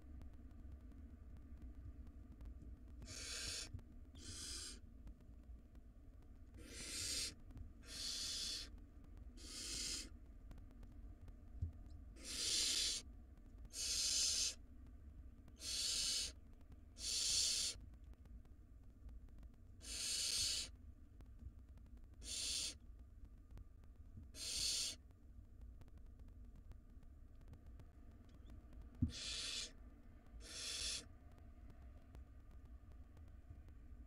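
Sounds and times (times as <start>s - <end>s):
owl nestlings hissing: 3.0s - 4.8s, 6.6s - 8.7s, 9.4s - 10.1s, 12.2s - 13.0s, 13.7s - 14.6s, 15.6s - 16.4s, 17.0s - 17.8s, 19.8s - 20.7s, 22.2s - 22.8s, 24.3s - 25.0s, 29.1s - 29.8s, 30.4s - 31.1s.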